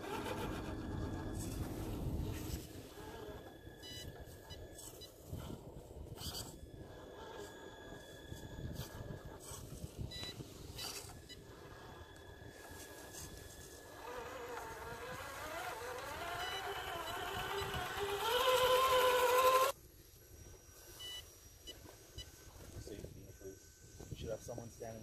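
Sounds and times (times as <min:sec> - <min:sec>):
electric motor and gears whining: 0:00.0 - 0:25.0.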